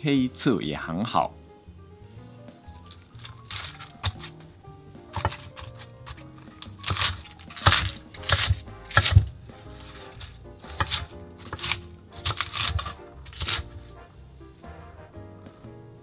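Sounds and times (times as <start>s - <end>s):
background music: 0.0s - 16.0s
knife cutting on wooden board: 2.9s - 4.5s, 5.1s - 14.0s.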